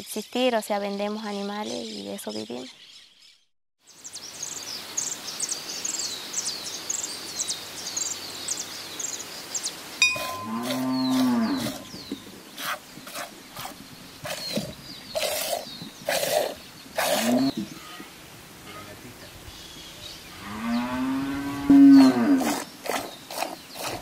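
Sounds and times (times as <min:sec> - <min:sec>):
birds chirping: 0:00.0 - 0:24.0
cow mooing: 0:10.1 - 0:12.0, 0:17.1 - 0:19.0, 0:20.3 - 0:22.6.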